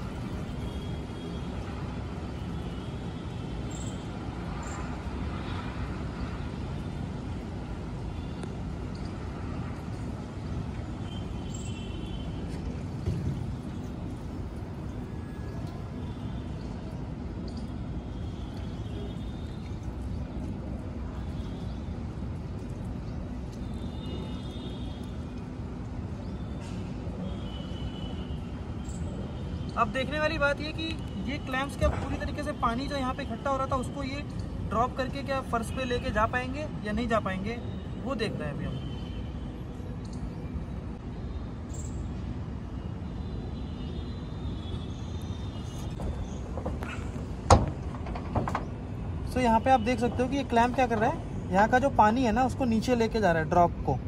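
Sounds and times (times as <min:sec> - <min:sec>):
faint high-pitched chirp: 0:03.7 - 0:04.0.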